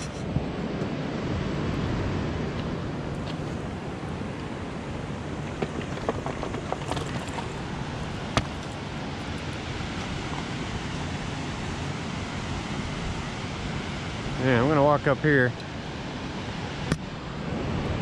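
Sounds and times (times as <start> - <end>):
water along the shore: 0.0 - 18.0
wind: 0.0 - 18.0
rocks knocking underfoot: 5.3 - 8.8.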